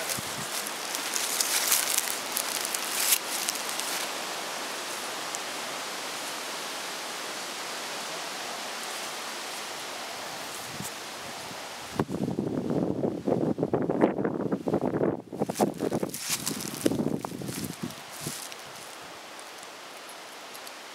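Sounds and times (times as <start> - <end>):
footsteps crunching dry leaves: 0.0 - 5.5, 15.4 - 20.6
wind in trees: 0.0 - 20.9.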